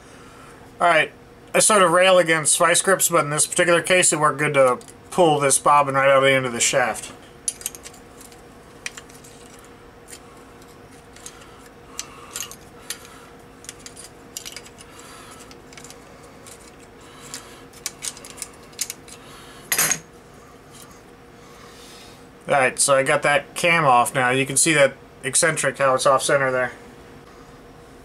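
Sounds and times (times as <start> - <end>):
small metal parts clicking: 7.5 - 20.0.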